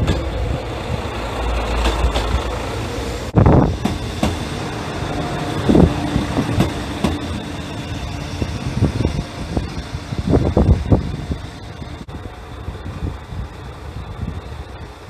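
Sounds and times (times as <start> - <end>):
wheels clacking over rail joints: 0.0 - 12.0
diesel railcar engine rumbling: 0.0 - 15.0.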